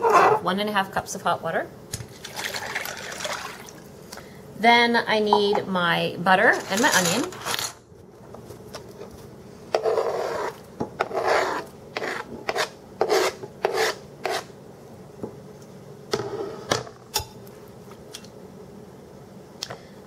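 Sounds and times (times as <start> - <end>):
knife scraping cutting board: 6.5 - 7.8, 9.7 - 14.5.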